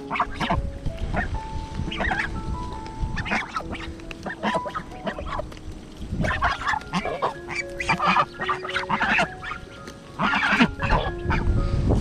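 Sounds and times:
geese honking: 0:00.0 - 0:11.8.

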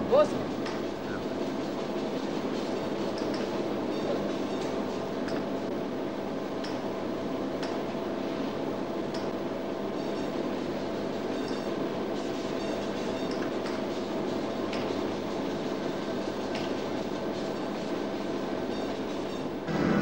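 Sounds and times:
equipment rumble and hum: 0:14.0 - 0:20.0.

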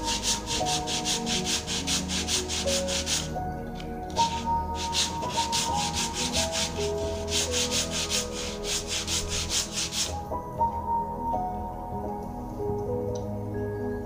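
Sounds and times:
wooden block rasping on sanding disc: 0:00.0 - 0:03.4, 0:04.2 - 0:10.2
soft melodic background music: 0:00.0 - 0:14.0.

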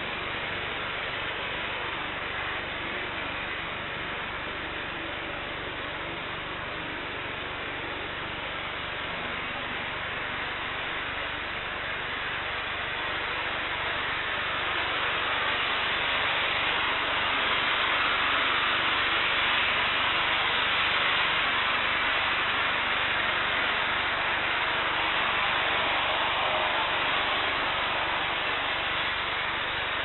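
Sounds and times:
jet engine rushing: 0:12.3 - 0:30.0.

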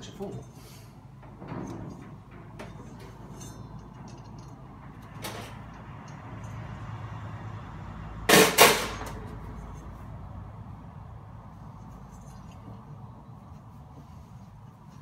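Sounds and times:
hammer clanking on steel: 0:08.3 - 0:09.2.

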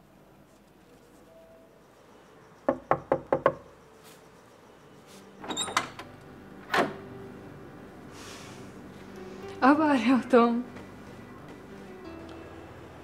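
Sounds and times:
knocks on a door: 0:02.7 - 0:03.6.

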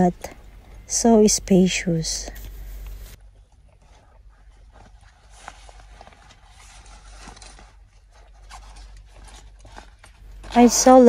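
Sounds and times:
bag rustling and scraping: 0:02.3 - 0:11.0.

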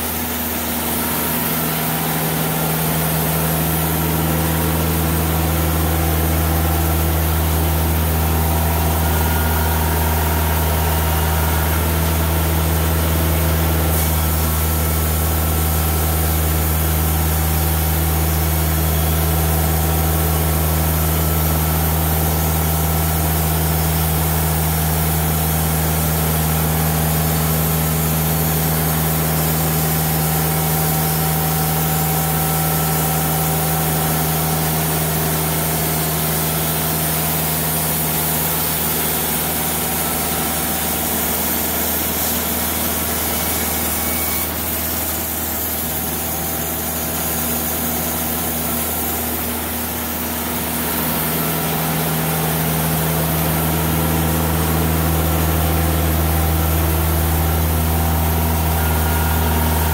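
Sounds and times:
engine hum: 0:00.0 - 0:39.0, 0:48.9 - 0:59.9
band saw blade cutting wood: 0:38.2 - 0:48.3.

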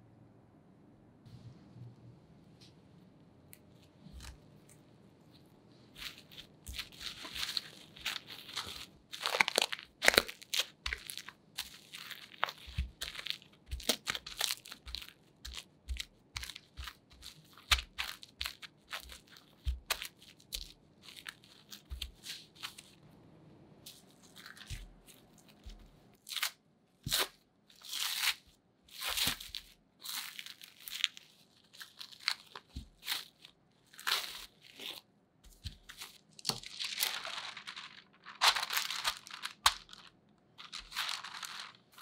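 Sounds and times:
cling film crinkling: 0:06.0 - 0:23.0, 0:29.0 - 0:42.0.

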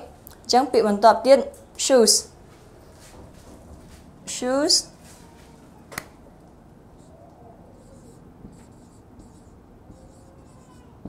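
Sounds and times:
marker scratching on whiteboard: 0:06.9 - 0:11.0.

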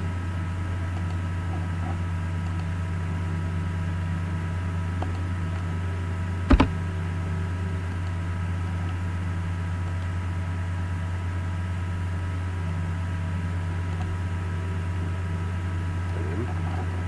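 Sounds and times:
low electrical hum: 0:00.0 - 0:17.0.

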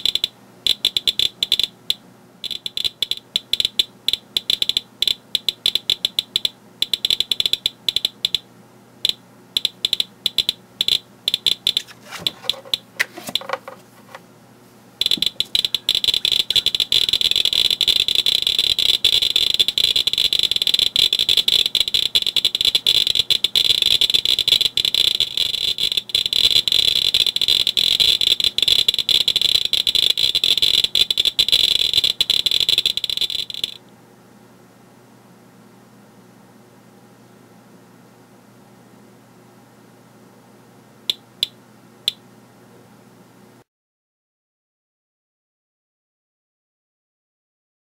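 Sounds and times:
geiger counter clicking: 0:00.0 - 0:08.4, 0:09.0 - 0:13.7, 0:15.0 - 0:33.8, 0:41.1 - 0:42.2
handling noise: 0:11.6 - 0:14.2.

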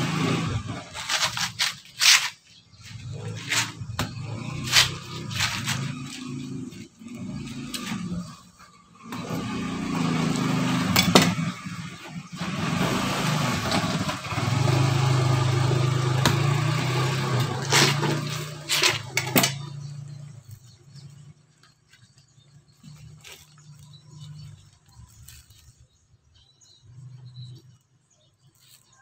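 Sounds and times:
vehicle engine humming: 0:00.0 - 0:28.6.

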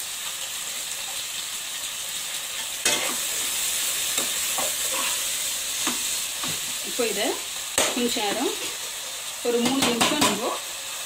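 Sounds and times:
food sizzling in a pot: 0:00.0 - 0:11.0
spatula scraping pot: 0:04.2 - 0:06.0
spatula knocking pot: 0:09.6 - 0:10.4.

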